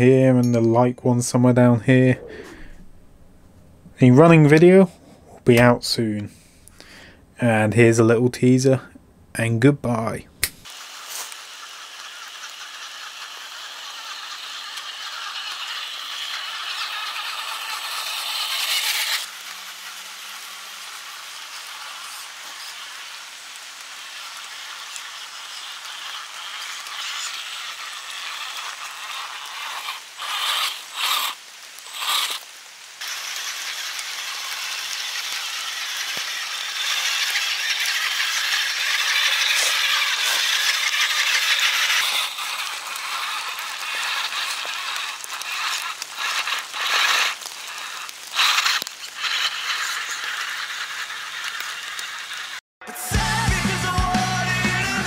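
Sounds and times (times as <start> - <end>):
toy tractor rattling over dry leaves: 10.7 - 32.4, 33.0 - 52.6.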